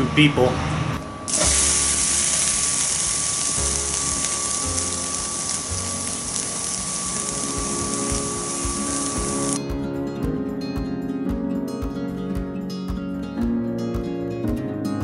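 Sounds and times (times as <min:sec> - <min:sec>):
thin whine: 0:01.0 - 0:09.6
steak sizzling on a grill: 0:01.3 - 0:09.6.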